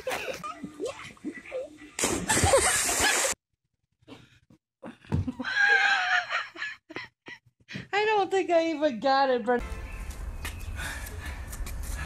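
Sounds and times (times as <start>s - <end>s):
big splash into pool: 2.0s - 3.4s.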